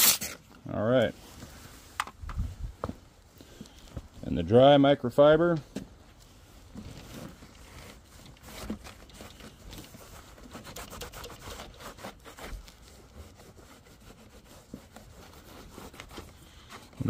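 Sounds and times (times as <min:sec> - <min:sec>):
towel rubbing on plastic: 0:06.6 - 0:17.0.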